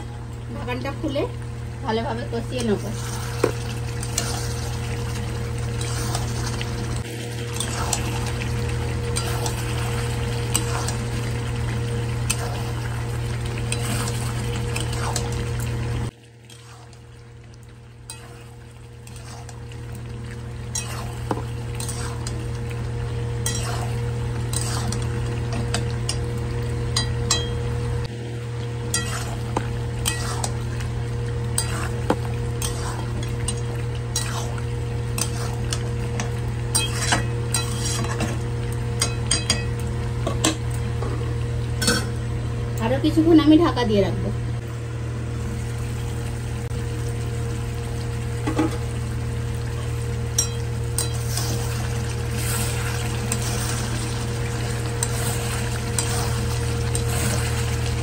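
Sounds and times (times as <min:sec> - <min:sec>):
frying sizzle: 0:00.0 - 0:58.0
metal spatula scraping pan: 0:28.9 - 0:29.4, 0:30.0 - 0:30.6, 0:36.7 - 0:38.3.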